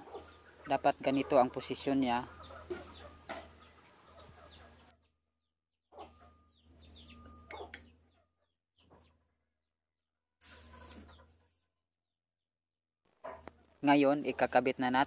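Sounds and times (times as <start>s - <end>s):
high insect buzz: 0.0s - 4.9s, 13.1s - 15.0s
birds chirping: 0.0s - 5.1s, 5.9s - 9.2s.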